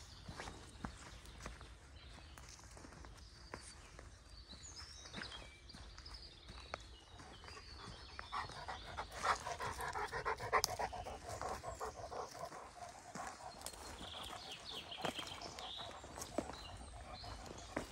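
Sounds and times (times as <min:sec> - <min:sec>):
soft footsteps on trail: 0:00.0 - 0:17.9
dog panting: 0:07.3 - 0:17.9.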